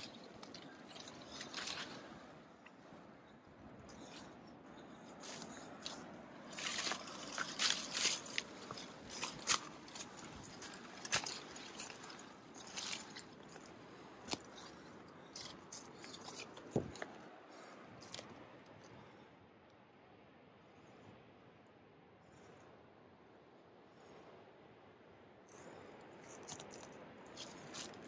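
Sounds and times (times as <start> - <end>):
steady background hiss: 0.0 - 28.0
footsteps crunching on trail: 5.2 - 17.2
sharp scuffs and clicks: 6.6 - 13.2.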